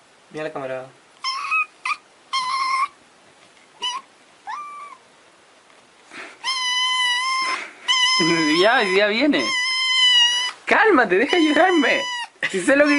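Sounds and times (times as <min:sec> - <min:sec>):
kitten meowing: 0:01.2 - 0:03.0, 0:03.8 - 0:05.0, 0:06.4 - 0:10.6, 0:11.2 - 0:12.9.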